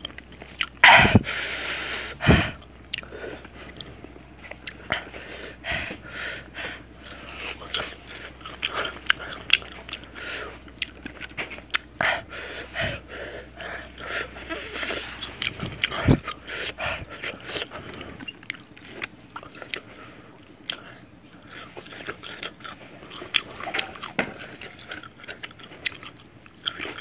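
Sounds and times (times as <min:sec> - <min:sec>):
wet chewing and lip smacks: 0:00.0 - 0:00.8, 0:02.6 - 0:05.0, 0:07.0 - 0:12.0, 0:14.0 - 0:27.0.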